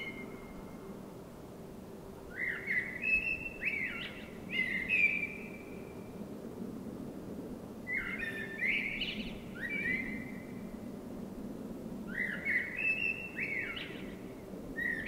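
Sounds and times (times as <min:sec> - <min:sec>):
blackbird singing: 0:02.4 - 0:05.6, 0:12.2 - 0:14.2.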